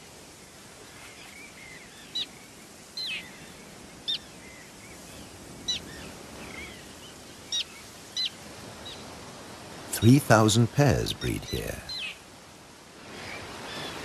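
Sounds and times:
wind and surf hiss: 0.0s - 14.0s
terns calling: 9.9s - 12.2s.

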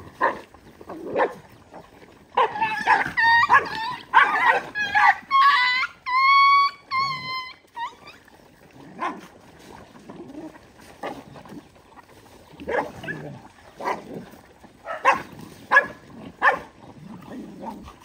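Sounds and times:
dog whining yelp: 2.4s - 8.2s
dogs yipping: 2.4s - 8.3s, 14.8s - 16.7s.

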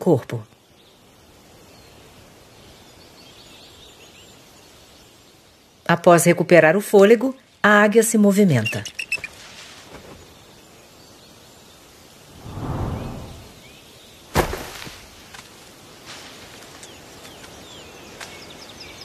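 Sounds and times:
small bird chirps: 8.5s - 9.4s
eagle wings whooshing: 12.3s - 13.6s.

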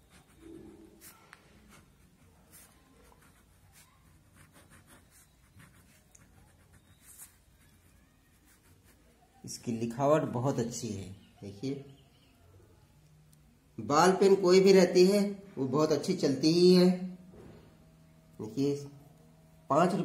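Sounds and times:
pen scratching on paper: 0.0s - 9.2s.

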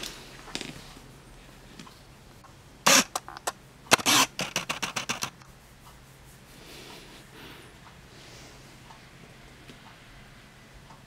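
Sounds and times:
sharp clicks: 2.9s - 5.5s.

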